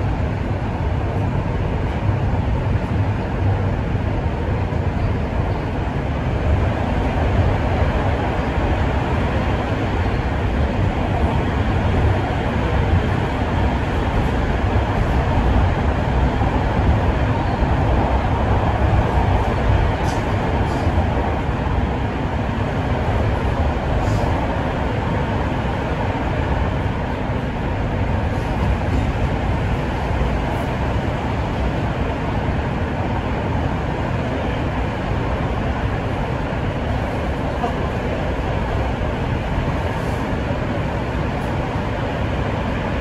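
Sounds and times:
subway train rumbling: 0.0s - 43.0s.

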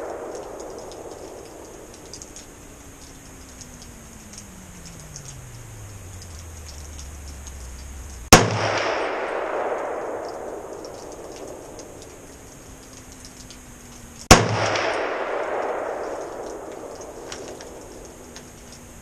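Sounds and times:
gunshots with echo: 0.0s - 2.5s, 8.3s - 12.4s, 14.3s - 18.2s.

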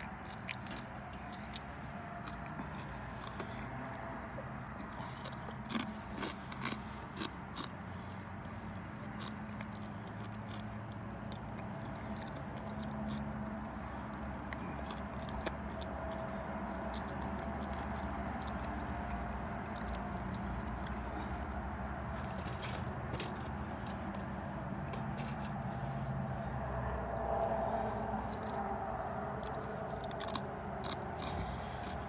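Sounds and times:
person crunching chips: 0.0s - 21.4s, 28.1s - 28.7s, 29.3s - 32.0s.

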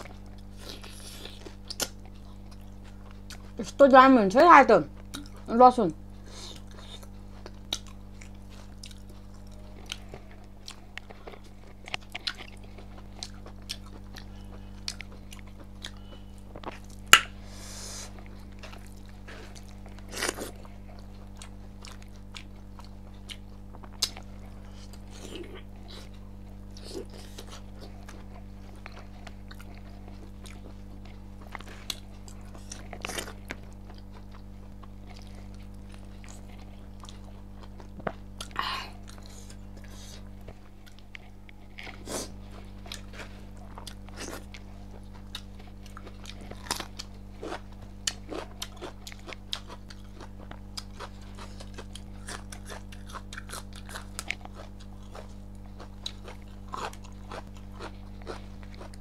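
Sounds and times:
person chewing and crunching: 0.0s - 3.8s, 4.9s - 5.5s, 6.2s - 59.0s
low electrical hum: 0.0s - 59.0s.

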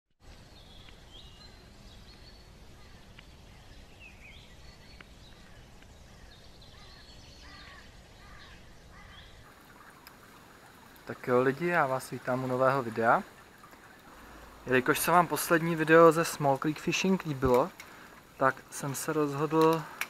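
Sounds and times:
small birds chirping: 0.2s - 20.0s
faint clicks: 4.9s - 6.0s, 9.5s - 11.2s, 13.4s - 14.8s, 15.8s - 20.0s.

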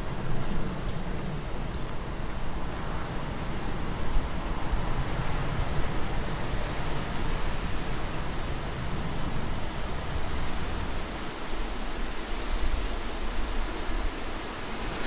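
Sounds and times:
rushing water: 3.1s - 15.0s.

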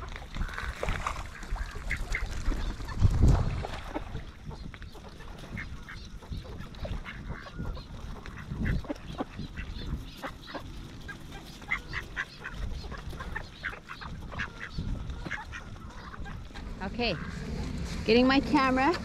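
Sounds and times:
ducks quacking: 0.0s - 3.0s, 3.6s - 18.9s
low rumble: 14.9s - 19.0s.

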